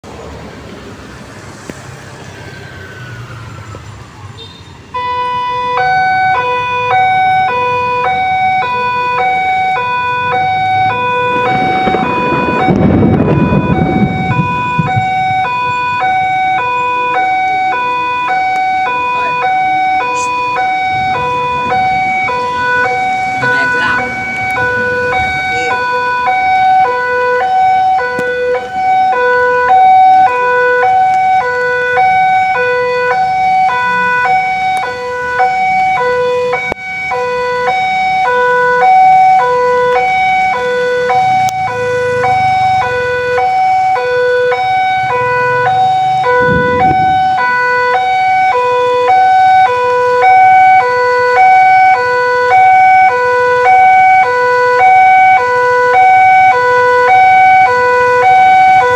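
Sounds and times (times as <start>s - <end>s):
level crossing alarm ding-dong: 17.4s - 26.0s.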